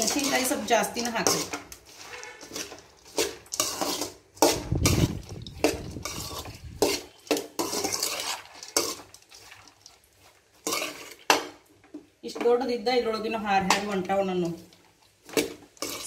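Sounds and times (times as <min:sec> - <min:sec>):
metal spoon scraping metal pan: 0:00.0 - 0:11.6, 0:15.3 - 0:16.0.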